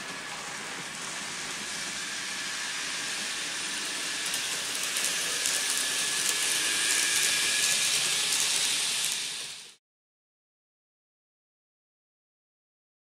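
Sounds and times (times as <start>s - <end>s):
model train running: 0.0s - 9.8s.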